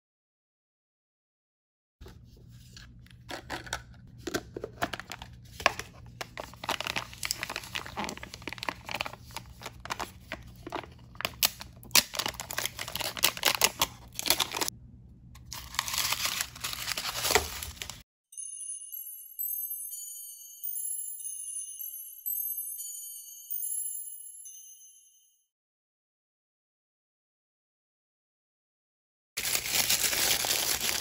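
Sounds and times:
plastic wrapper crinkling and tearing: 0:03.3 - 0:14.7, 0:15.4 - 0:18.0, 0:29.4 - 0:31.0.

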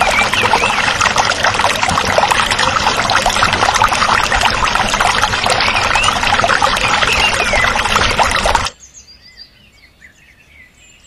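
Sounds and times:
water pouring into a pond: 0:00.0 - 0:08.8.

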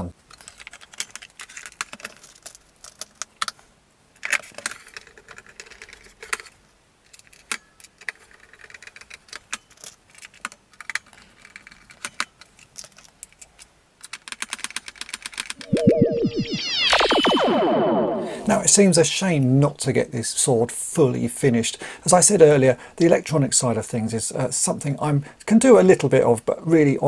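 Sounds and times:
plastic toy casing clicks and knocks: 0:07.1 - 0:15.5.

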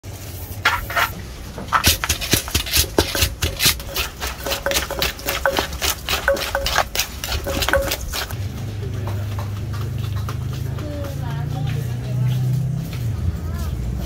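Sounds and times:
wooden pestle pounding in clay mortar: 0:00.7 - 0:11.6.

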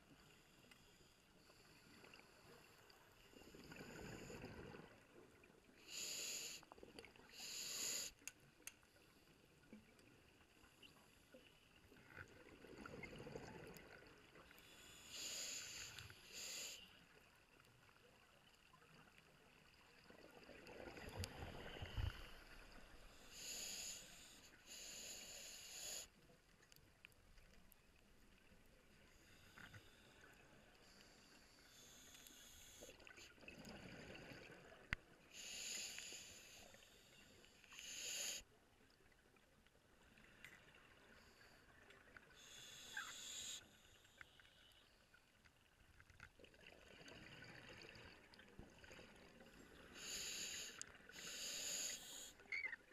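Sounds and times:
regulator hissing inhale: 0:05.8 - 0:06.7, 0:07.3 - 0:08.2, 0:14.6 - 0:17.1, 0:23.1 - 0:26.2, 0:29.1 - 0:33.2, 0:35.3 - 0:38.5, 0:42.4 - 0:44.9, 0:49.8 - 0:52.5.

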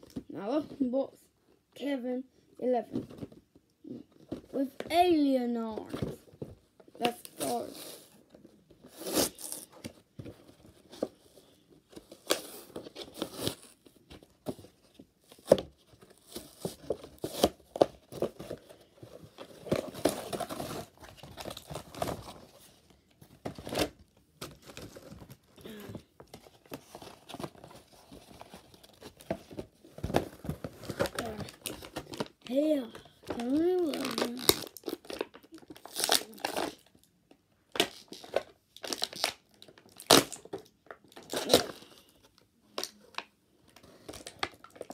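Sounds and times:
packaging tearing and crinkling: 0:33.3 - 0:37.0, 0:37.7 - 0:41.9.

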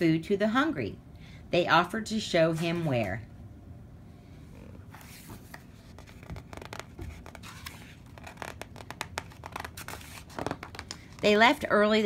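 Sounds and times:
paper pages rustling: 0:04.9 - 0:11.2.

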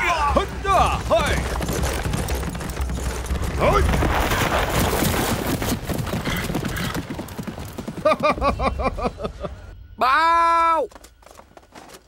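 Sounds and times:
horse hooves galloping: 0:00.0 - 0:08.9
man laughing loudly: 0:08.0 - 0:09.7.

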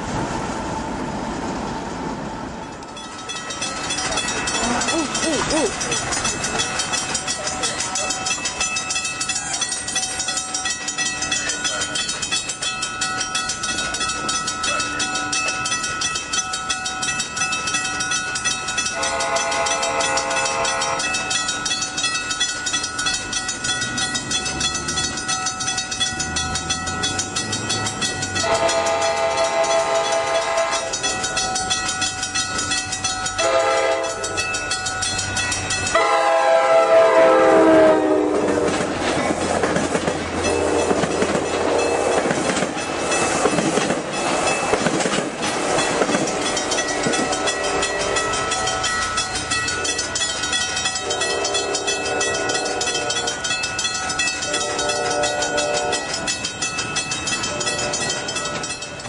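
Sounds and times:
railroad crossing bell ringing: 0:02.6 - 0:59.0
train horn blasts: 0:18.9 - 0:21.1, 0:28.4 - 0:31.0, 0:33.4 - 0:34.2, 0:36.0 - 0:38.8, 0:51.0 - 0:53.4, 0:54.5 - 0:56.1.

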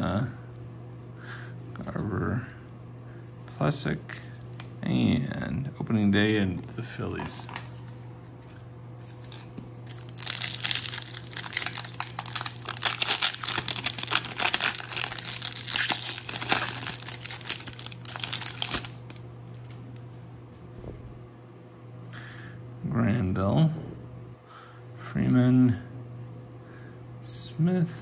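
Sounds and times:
plastic wrapper tearing and crinkling: 0:09.1 - 0:19.8.

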